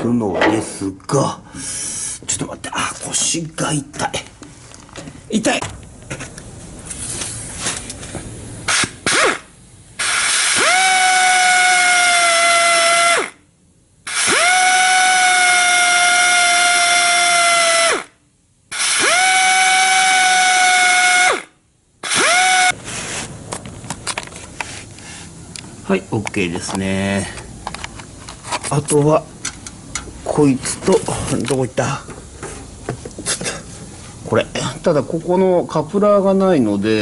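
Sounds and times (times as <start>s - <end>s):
electric drill boring into steel: 10.0s - 13.4s, 14.1s - 18.1s, 18.7s - 22.8s.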